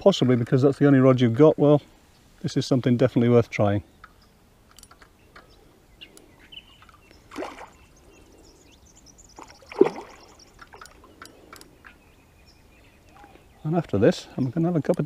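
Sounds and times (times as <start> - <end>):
splashes on pond water: 7.3 - 7.8, 9.4 - 10.9.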